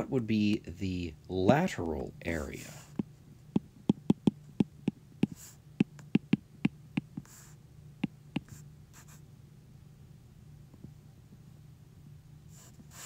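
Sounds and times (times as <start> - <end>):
stylus tapping on glass screen: 3.0 - 7.2, 8.0 - 8.5.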